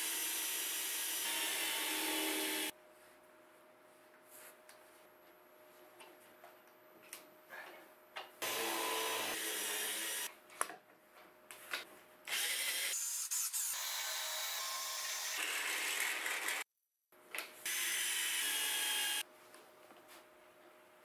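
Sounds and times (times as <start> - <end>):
cordless drill boring wood: 0.0 - 2.7, 8.4 - 10.3, 17.7 - 19.2.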